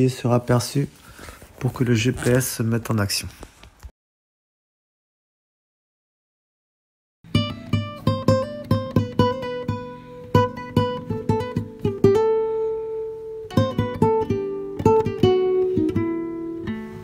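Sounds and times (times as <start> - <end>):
acoustic guitar plucked notes: 7.3 - 17.0.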